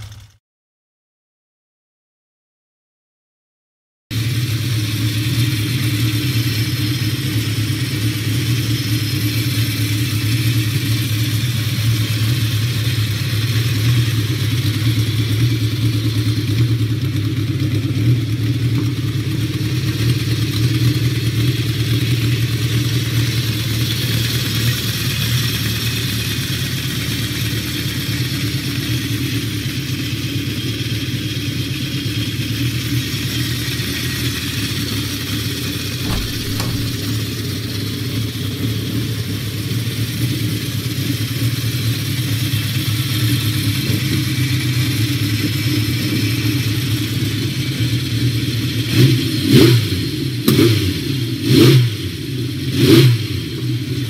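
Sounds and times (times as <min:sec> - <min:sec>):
motorcycle engine running: 0:00.0 - 0:00.4, 0:04.2 - 0:54.0.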